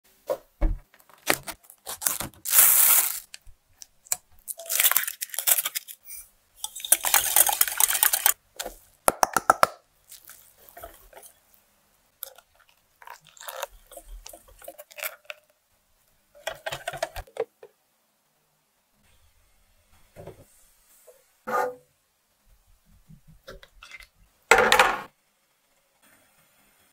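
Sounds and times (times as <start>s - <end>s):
whisk scraping in glass bowl: 6.6s - 8.4s, 13.1s - 15.1s.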